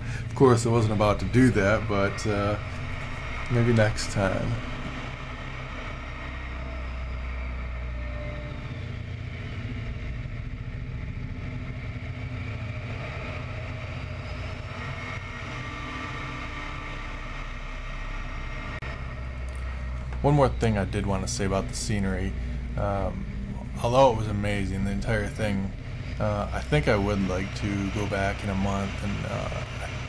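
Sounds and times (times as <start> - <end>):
radial aircraft engine droning: 0.0 - 30.0.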